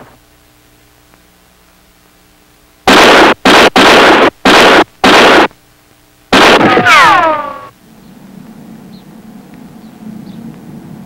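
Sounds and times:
loud gunshots: 2.9 - 5.6, 6.3 - 7.7.

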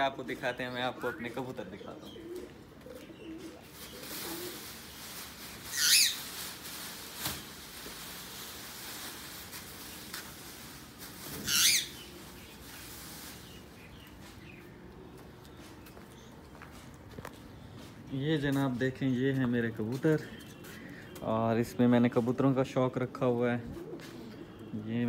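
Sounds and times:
plastic sheet rustling: 3.6 - 14.5.

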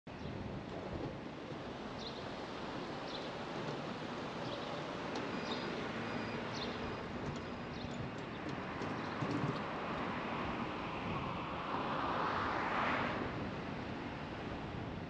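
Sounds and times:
bird chirps: 5.3 - 6.8.

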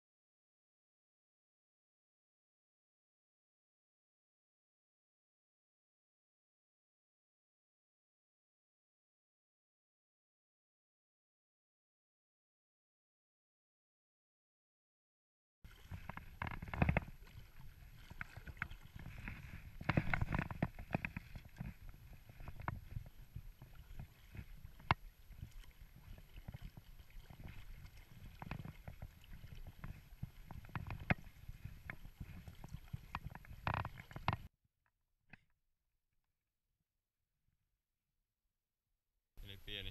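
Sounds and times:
water splashing and sloshing: 15.7 - 34.5
sharp clicks and knocks: 33.1 - 34.5.

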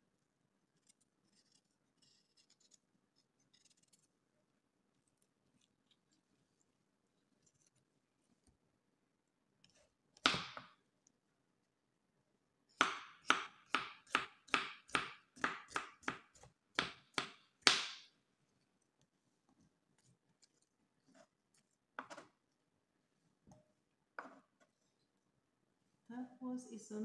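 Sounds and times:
knife chopping on cutting board: 12.8 - 18.1.

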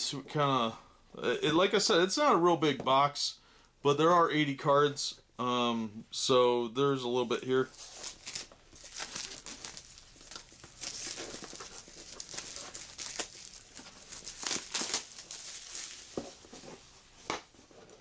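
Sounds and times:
packaging crinkling and tearing: 7.7 - 16.4.

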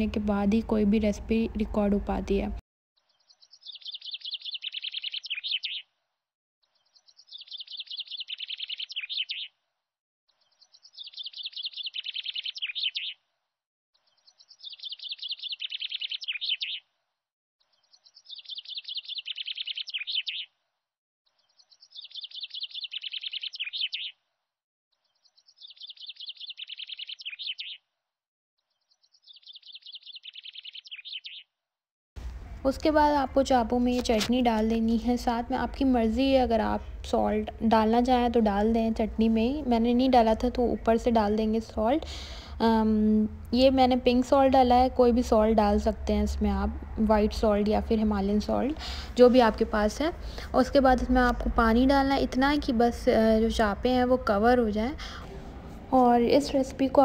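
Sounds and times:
bird trilling high chirps: 3.0 - 5.9, 6.6 - 9.6, 10.3 - 13.2, 14.0 - 16.8, 17.6 - 20.5, 21.3 - 24.2, 25.0 - 27.8, 28.7 - 31.5.

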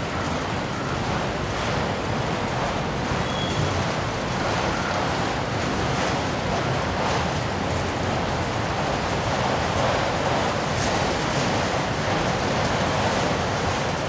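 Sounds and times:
steel wheels rumbling on rails: 0.0 - 14.0.

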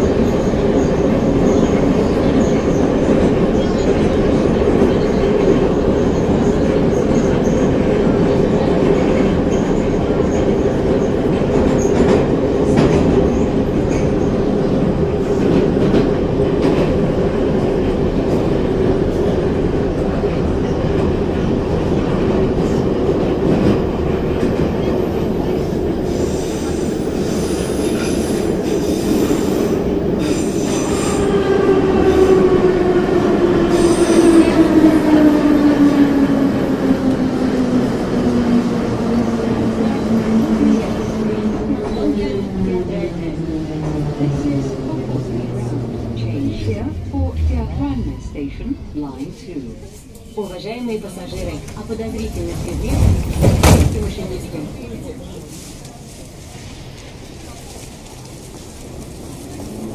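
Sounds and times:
train wheels rumbling on rails: 0.0 - 59.9
constant hum: 45.4 - 49.7.

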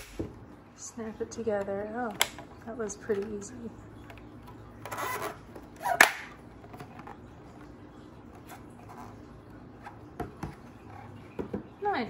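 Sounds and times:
sharp plastic clack: 2.2 - 2.5, 6.0 - 6.3
plastic scraping: 4.1 - 11.7.

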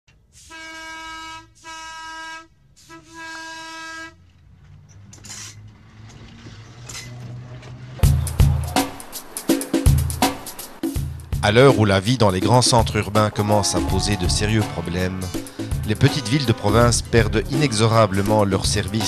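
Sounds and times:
train rumble: 0.2 - 19.0
train horn blasts: 0.4 - 4.3
loud music: 8.0 - 19.0.

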